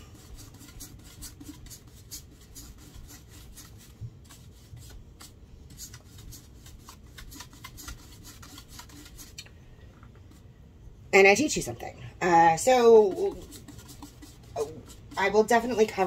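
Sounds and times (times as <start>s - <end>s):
paintbrush brushing scratches: 0.0s - 9.4s, 12.6s - 16.0s.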